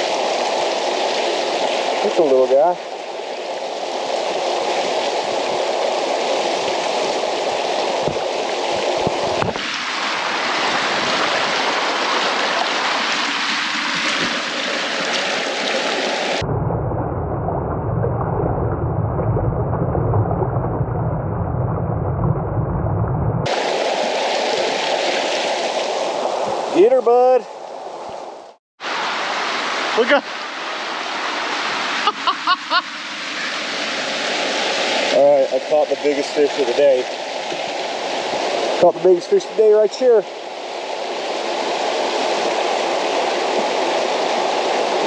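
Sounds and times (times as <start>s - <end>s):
river water rushing over rocks: 0.0s - 16.4s, 23.5s - 26.8s, 27.6s - 35.6s, 39.9s - 45.0s
muffled underwater rumble: 16.4s - 23.5s.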